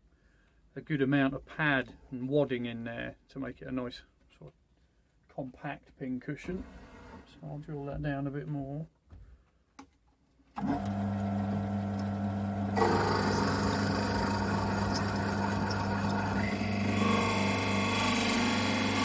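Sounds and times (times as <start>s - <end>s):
drill bit boring into wood: 10.6s - 19.0s
wood lathe humming: 10.6s - 19.0s.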